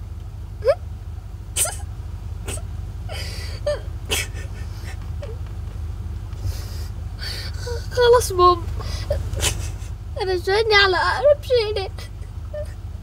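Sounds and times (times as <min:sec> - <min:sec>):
low hum inside car: 0:00.0 - 0:13.0
person whimpering: 0:02.5 - 0:05.4, 0:06.5 - 0:08.0.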